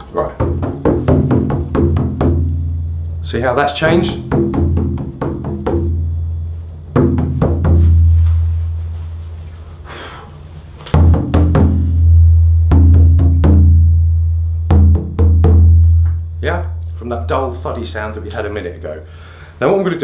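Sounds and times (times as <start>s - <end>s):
frame drum beater booms: 0.2s - 6.3s, 6.9s - 8.2s, 10.9s - 15.8s
hand taps on frame drum: 0.4s - 2.7s, 4.0s - 6.0s.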